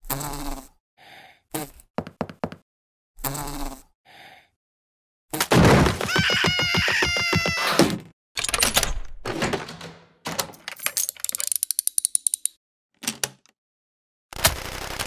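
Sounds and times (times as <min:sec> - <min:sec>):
cartoon crashing hits: 0:05.4 - 0:08.1.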